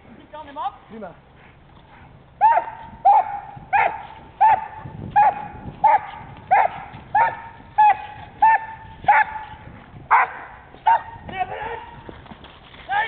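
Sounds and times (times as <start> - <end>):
dog barking: 2.4 - 9.5, 10.1 - 11.2.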